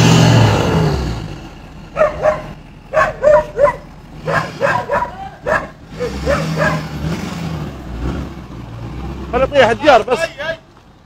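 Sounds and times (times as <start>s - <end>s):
dog barking: 2.0s - 6.9s.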